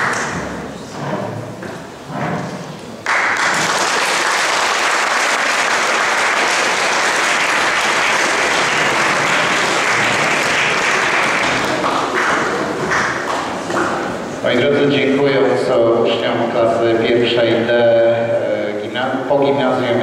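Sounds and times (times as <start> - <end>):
audience applauding: 3.0 - 14.2.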